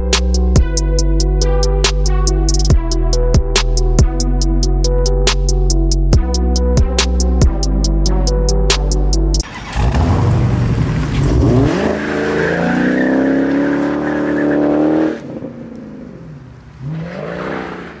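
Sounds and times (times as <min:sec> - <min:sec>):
car engine revving: 0:09.4 - 0:18.0.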